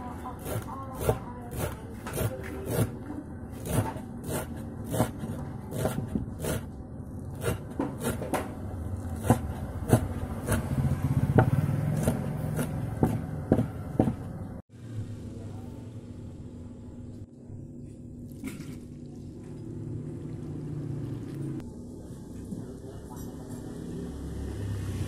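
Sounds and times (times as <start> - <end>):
knife chopping on wooden board: 0.4 - 3.0, 3.6 - 6.7, 7.4 - 14.4.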